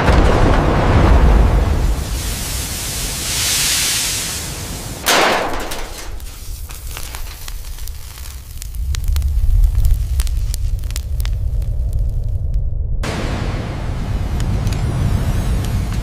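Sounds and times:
steam hissing: 0:01.7 - 0:11.2
crackling and popping: 0:05.0 - 0:13.0, 0:14.3 - 0:16.0
low rumble: 0:06.0 - 0:16.0
loud burst of noise: 0:08.2 - 0:16.0.

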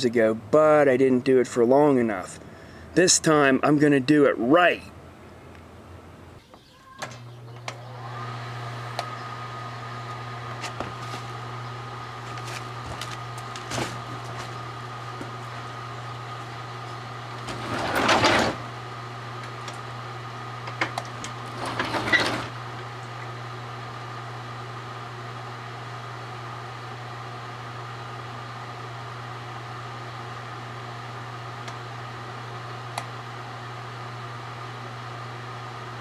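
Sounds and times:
microwave humming: 0:05.0 - 0:36.0
microwave clicks: 0:31.6 - 0:31.8.

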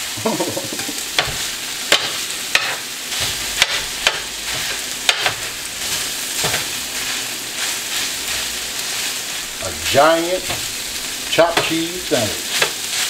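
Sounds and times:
meat sizzling on a griddle: 0:00.0 - 0:13.0
metal blades clacking on griddle: 0:00.9 - 0:05.5, 0:11.4 - 0:11.8.

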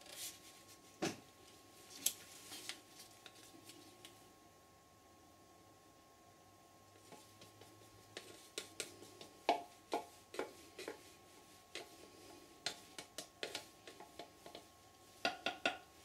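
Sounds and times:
stick scraping and tapping a cup: 0:07.0 - 0:15.9.

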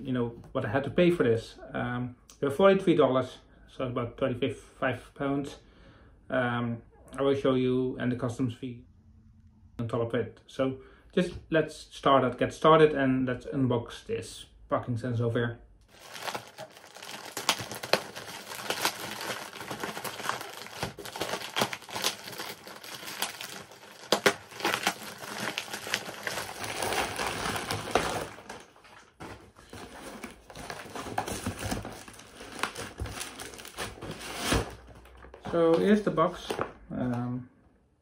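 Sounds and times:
plastic mailing bag tearing: 0:15.9 - 0:36.6
plastic packaging crinkling: 0:15.9 - 0:36.7.

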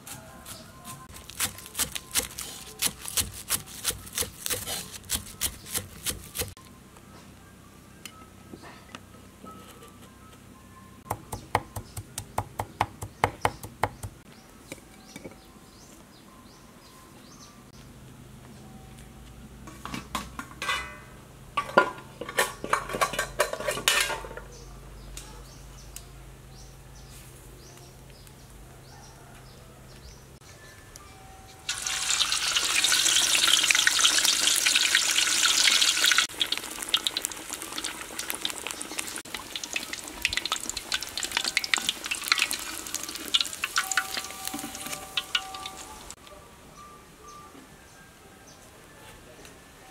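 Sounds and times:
meat sizzling in hot oil: 0:31.7 - 0:46.1.

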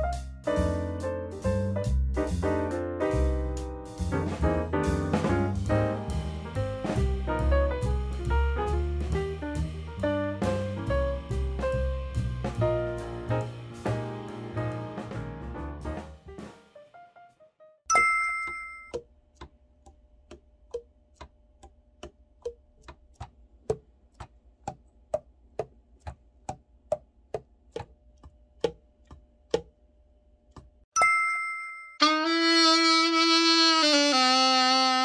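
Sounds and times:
chime: 0:17.9 - 0:19.0, 0:31.0 - 0:32.0
alto saxophone playing held notes: 0:32.0 - 0:35.0.

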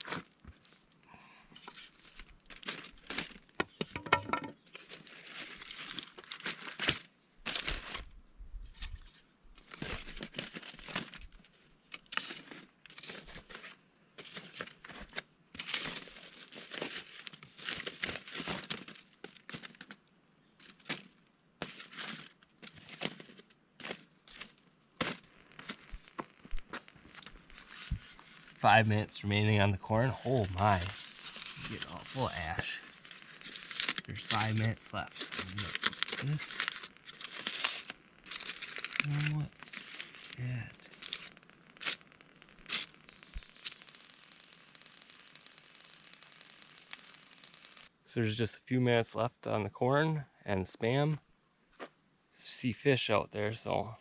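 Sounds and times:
foil packet crinkling: 0:01.6 - 0:03.6, 0:04.7 - 0:08.1, 0:09.6 - 0:20.0, 0:20.6 - 0:28.6, 0:30.1 - 0:47.9
sharp clicks: 0:31.6 - 0:47.9.

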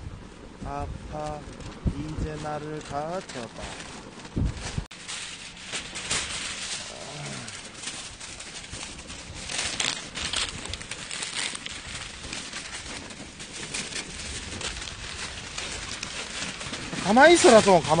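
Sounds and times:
aluminium foil crinkling: 0:00.5 - 0:18.0.

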